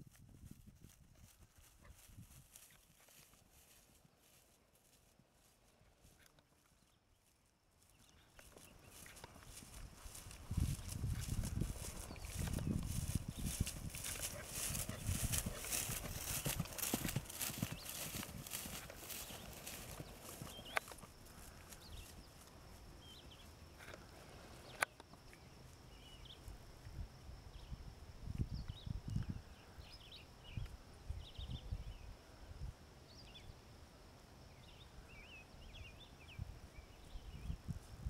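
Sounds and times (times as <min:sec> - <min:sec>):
small birds chirping: 0:05.9 - 0:26.6.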